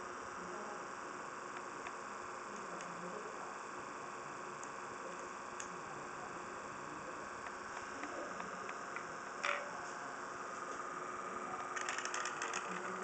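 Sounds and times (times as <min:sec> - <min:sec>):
faint steady hum and hiss: 0:00.0 - 0:13.0.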